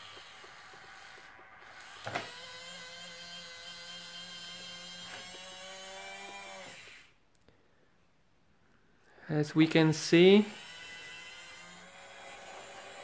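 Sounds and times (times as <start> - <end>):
electric motor whining: 0.0 - 7.2, 10.2 - 13.0.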